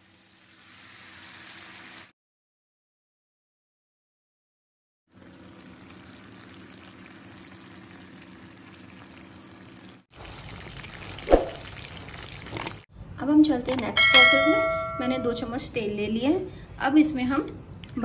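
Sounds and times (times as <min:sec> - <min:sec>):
oil sizzling and bubbling: 0:00.0 - 0:02.1, 0:05.1 - 0:12.9.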